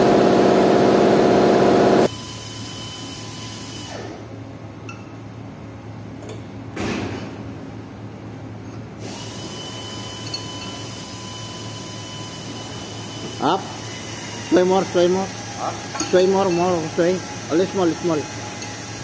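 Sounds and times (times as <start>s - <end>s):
low machine hum: 3.9s - 19.0s.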